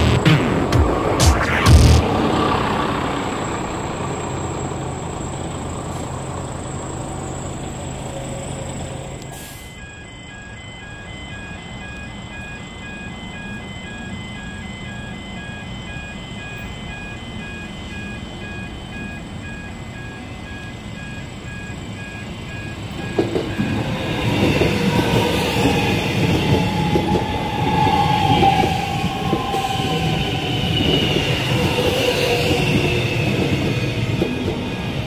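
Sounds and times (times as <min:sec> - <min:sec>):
electronic warning beeps: 0:00.0 - 0:02.1, 0:03.4 - 0:35.0
passing vehicle hum: 0:00.0 - 0:09.4.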